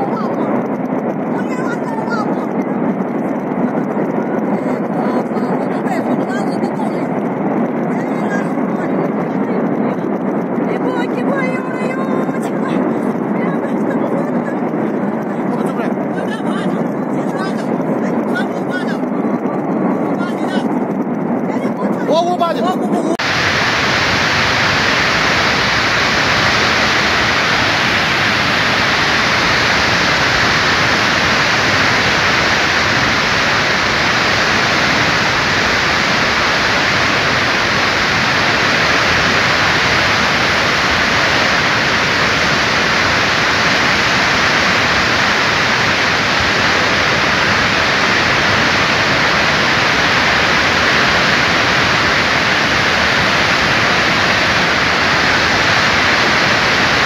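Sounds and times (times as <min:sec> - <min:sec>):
flash flood water rushing: 0:23.2 - 0:57.0.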